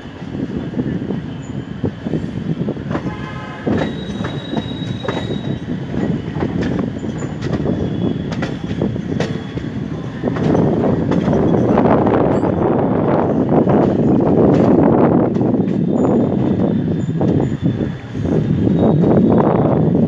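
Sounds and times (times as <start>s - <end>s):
train rumble: 0.0s - 20.0s
train wheels knocking on rail joints: 2.8s - 12.6s, 13.6s - 16.6s
high-pitched wheel squeals: 3.5s - 6.3s, 6.9s - 10.2s, 15.5s - 19.9s.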